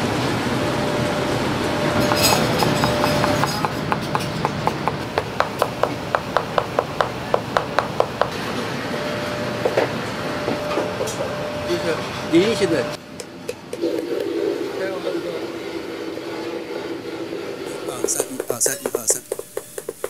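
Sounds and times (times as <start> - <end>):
steady background hum: 0.0 - 20.0
cleaver chopping on cutting board: 2.0 - 8.3, 17.9 - 20.0.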